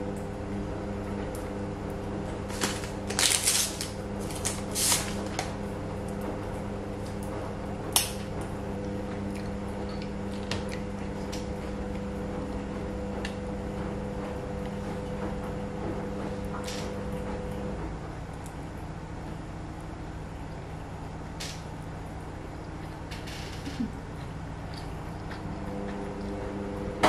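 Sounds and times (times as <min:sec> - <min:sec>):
steady low hum: 0:00.0 - 0:27.0
plastic packaging crinkling: 0:02.5 - 0:05.6
wooden chopsticks snapping apart: 0:07.9 - 0:08.2.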